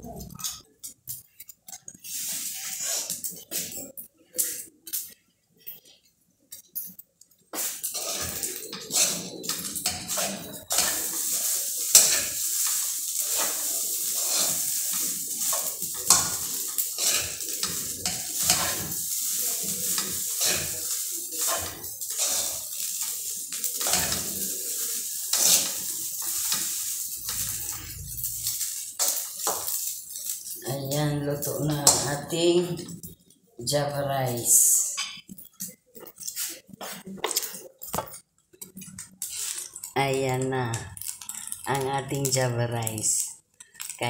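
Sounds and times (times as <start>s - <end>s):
rice sizzling in oil: 0.3s - 5.8s, 6.5s - 33.2s, 38.6s - 44.0s
spatula scraping a pan: 1.8s - 3.9s, 7.6s - 30.6s, 39.2s - 39.9s.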